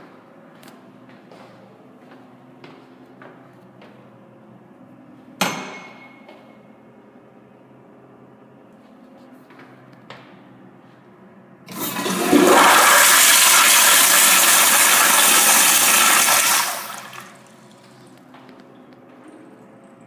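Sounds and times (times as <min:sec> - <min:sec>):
toilet flushing: 0:11.7 - 0:17.9.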